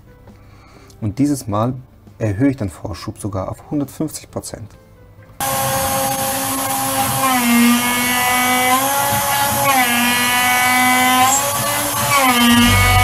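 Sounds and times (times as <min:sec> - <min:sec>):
milling spindle whine: 0:05.4 - 0:13.0.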